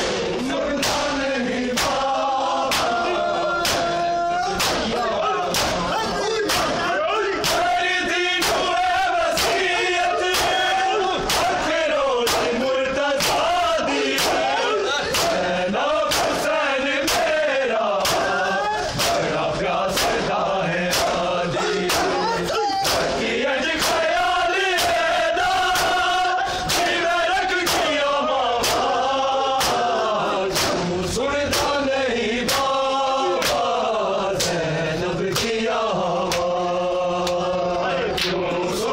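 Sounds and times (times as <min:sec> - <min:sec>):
men chanting together: 0:00.0 - 0:38.9
hands slapping chests: 0:00.8 - 0:01.2, 0:01.8 - 0:02.1, 0:02.7 - 0:03.0, 0:03.6 - 0:03.9, 0:04.6 - 0:04.9, 0:05.5 - 0:05.9, 0:06.5 - 0:06.8, 0:07.4 - 0:07.7, 0:09.4 - 0:09.7, 0:11.3 - 0:11.6, 0:12.3 - 0:12.6, 0:14.2 - 0:14.5, 0:15.1 - 0:15.5, 0:16.1 - 0:16.4, 0:17.1 - 0:17.3, 0:18.0 - 0:19.3, 0:19.9 - 0:20.3, 0:20.9 - 0:21.2, 0:21.9 - 0:23.2, 0:27.6 - 0:28.0, 0:28.6 - 0:29.0, 0:29.6 - 0:29.9, 0:30.5 - 0:30.9, 0:31.5 - 0:31.8, 0:33.4 - 0:33.7, 0:34.4 - 0:34.6, 0:35.3 - 0:35.6, 0:36.3 - 0:36.5.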